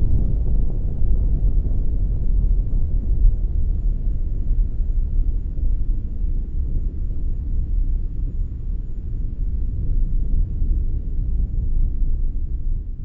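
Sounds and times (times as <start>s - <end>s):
avalanche rumble: 0.0s - 13.0s.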